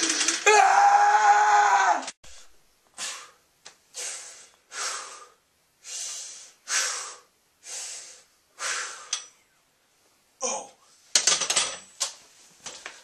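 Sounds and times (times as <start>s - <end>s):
person breathing hard: 2.2s - 9.2s.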